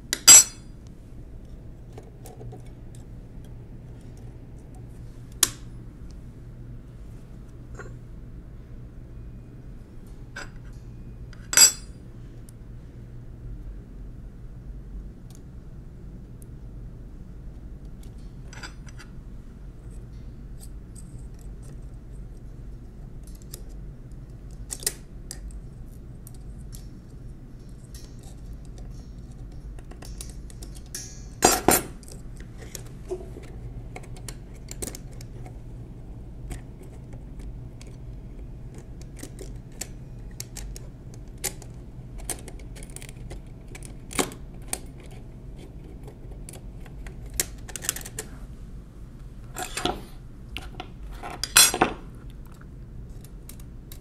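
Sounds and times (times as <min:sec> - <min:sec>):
small metal parts clicking: 0:24.5 - 0:32.9, 0:38.7 - 0:45.2.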